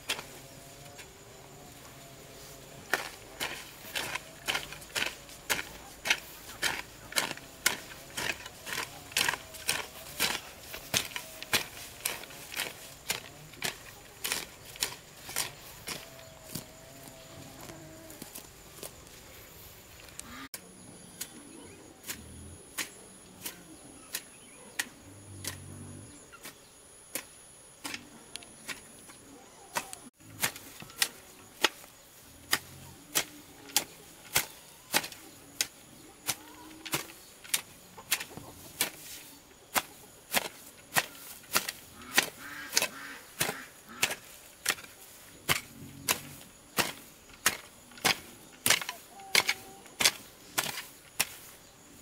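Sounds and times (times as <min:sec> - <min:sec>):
hoe chopping into soil: 0:02.8 - 0:17.2, 0:29.7 - 0:51.6.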